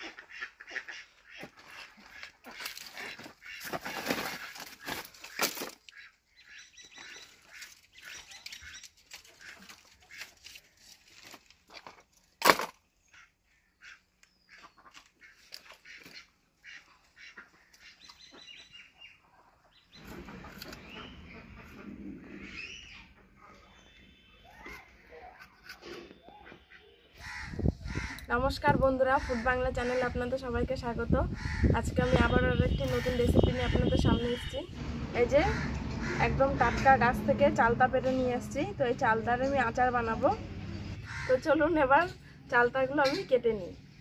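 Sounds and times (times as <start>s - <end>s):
ducks or geese calling: 0.0s - 10.5s, 13.0s - 28.3s, 29.1s - 30.3s, 31.3s - 42.2s
firewood sticks rustling and clattering: 1.4s - 6.0s, 7.0s - 12.8s.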